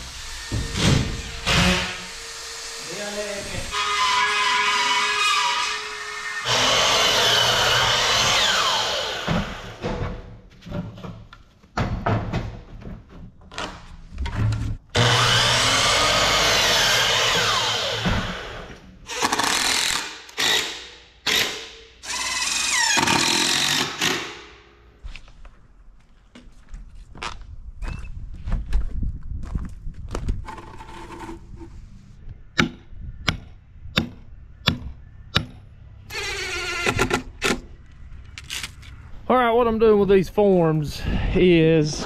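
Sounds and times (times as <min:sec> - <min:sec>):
power drill whining in bursts: 0:22.0 - 0:24.1, 0:36.1 - 0:37.2.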